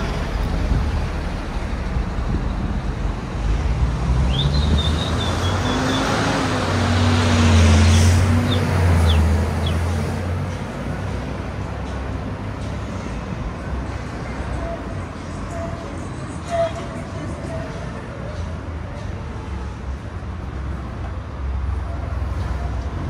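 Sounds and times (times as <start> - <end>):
street traffic: 0.0 - 23.0
vehicle engine passing: 3.3 - 10.5.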